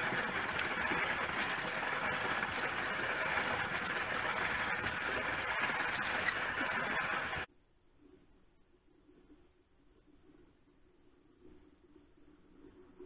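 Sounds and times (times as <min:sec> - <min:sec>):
sled runners scraping on snow: 0:00.0 - 0:07.5.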